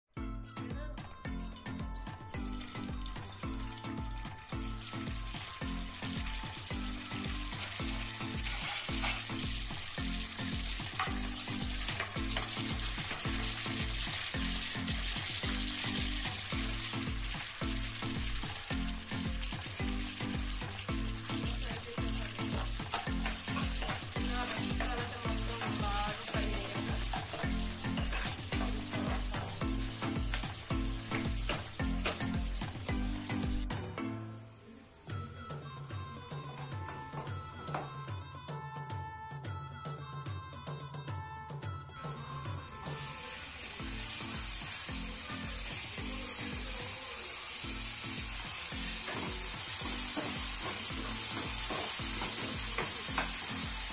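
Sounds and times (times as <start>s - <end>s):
food sizzling in hot oil: 1.5s - 38.1s, 42.0s - 53.9s
ladle stirring and scraping pan: 7.2s - 17.6s, 20.6s - 32.9s, 48.9s - 53.9s.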